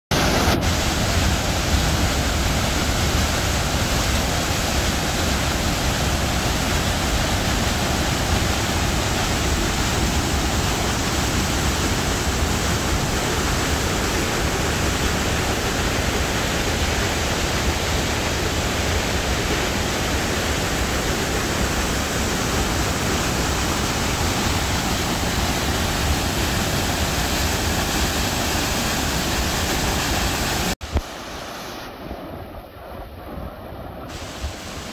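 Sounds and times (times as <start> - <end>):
water rushing through sluice gate: 0.1 - 32.7, 34.1 - 34.9.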